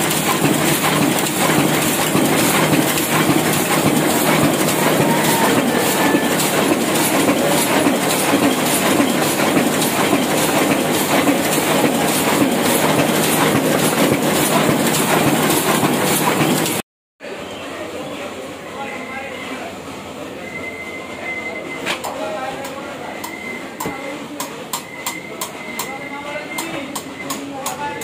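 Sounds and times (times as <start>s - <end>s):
printing press clattering: 0.0s - 16.8s.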